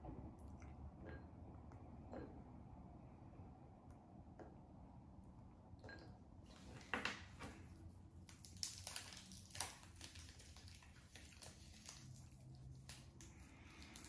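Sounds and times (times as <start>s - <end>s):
chocolate wrapper crackling: 8.1s - 14.0s
chocolate being broken by hand: 8.2s - 14.0s.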